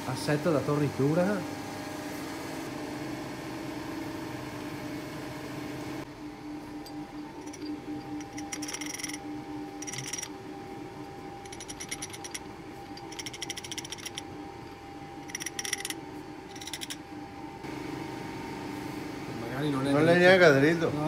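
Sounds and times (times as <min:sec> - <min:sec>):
steady hum: 0:06.0 - 0:19.6.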